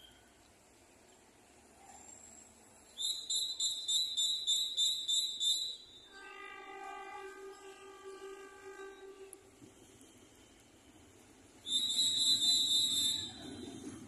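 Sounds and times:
locomotive horn blast: 6.1s - 10.5s.

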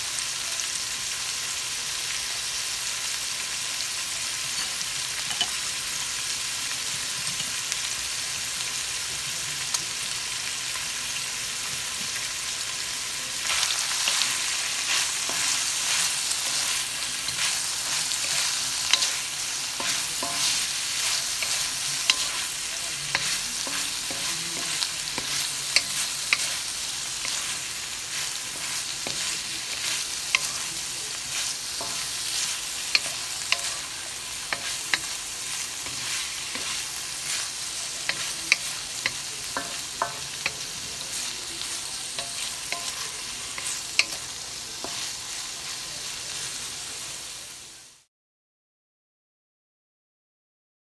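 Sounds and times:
food sizzling in a wok: 0.0s - 48.1s
spatula scraping and clicking on pan: 13.6s - 30.6s, 31.3s - 41.3s, 42.1s - 45.2s.

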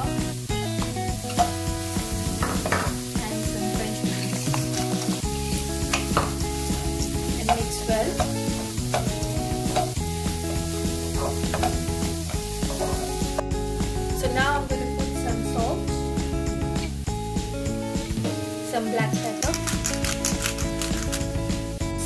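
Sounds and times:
background music: 0.0s - 22.0s
vegetables sizzling in oil: 0.0s - 22.0s
wooden spatula scraping pan: 12.6s - 13.2s.

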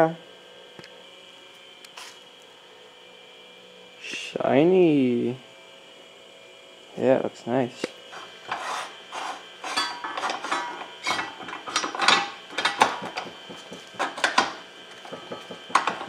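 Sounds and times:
metal gears clinking and scraping: 8.5s - 14.4s.

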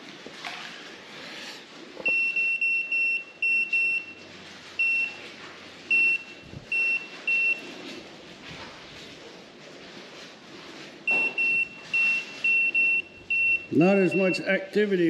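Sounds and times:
short high-pitched beeps: 5.9s - 7.6s, 11.1s - 14.4s.

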